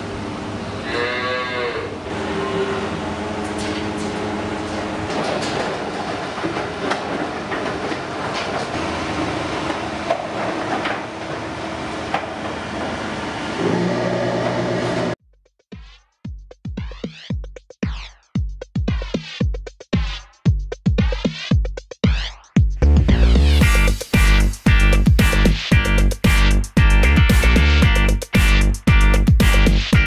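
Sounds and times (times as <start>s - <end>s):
mechanical hum and rumble: 0.0s - 15.2s
metallic clanks and knocks: 3.4s - 8.8s.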